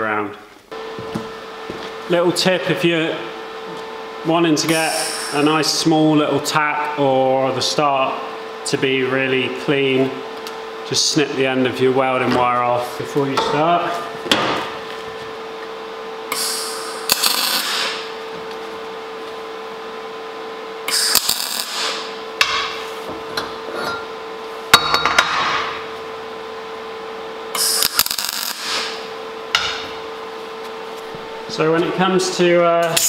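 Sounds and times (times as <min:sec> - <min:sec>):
welding arc crackle: 0:04.7 - 0:05.7, 0:16.3 - 0:18.1, 0:20.9 - 0:22.2, 0:27.6 - 0:29.1.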